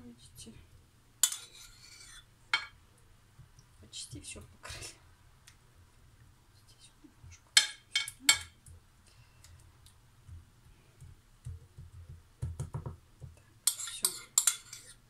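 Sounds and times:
utensil scraping a dish: 1.2s - 2.3s, 13.7s - 15.0s.

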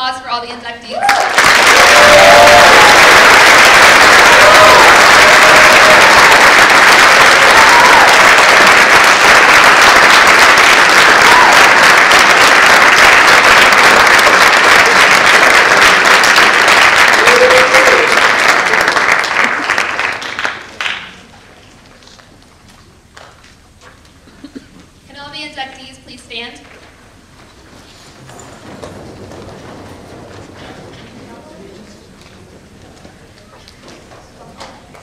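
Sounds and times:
audience applauding: 1.0s - 21.4s.

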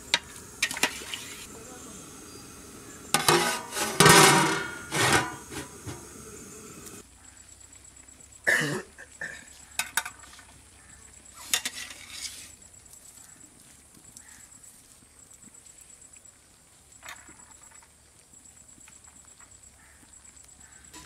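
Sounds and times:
pot and lid clanking: 0.0s - 7.0s
metal spoon scraping in pot: 0.1s - 1.5s, 2.3s - 6.2s.

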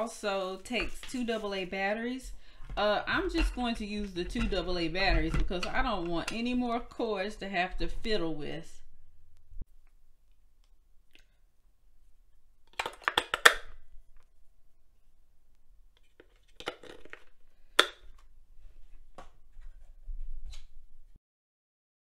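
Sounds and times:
batteries clattering in plastic housing: 16.0s - 18.2s.

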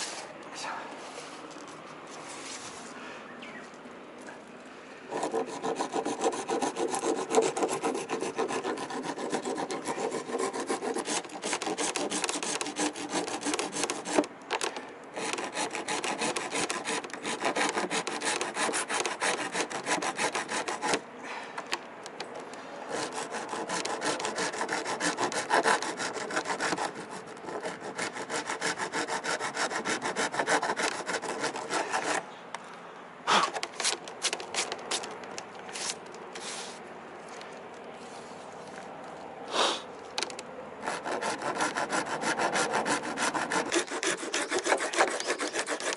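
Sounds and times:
metal file scraping epoxy: 5.1s - 14.3s, 15.2s - 21.0s, 22.9s - 32.2s, 40.9s - 45.9s.

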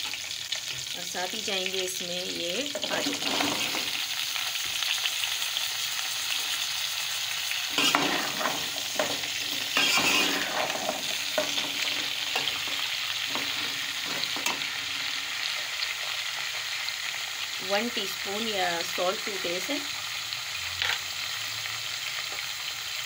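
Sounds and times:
potatoes sizzling in hot oil: 0.0s - 23.0s
metal spoon scraping a pot: 2.7s - 4.0s, 7.7s - 16.3s.

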